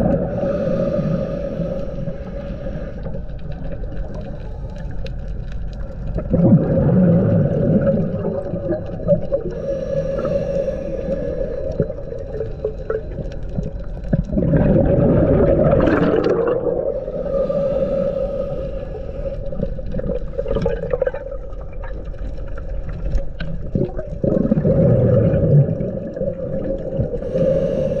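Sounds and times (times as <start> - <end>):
steady hum: 0.0 - 5.7, 6.8 - 21.3, 25.8 - 28.0
diver exhaling bubbles: 6.2 - 13.2, 14.1 - 21.8, 23.6 - 28.0.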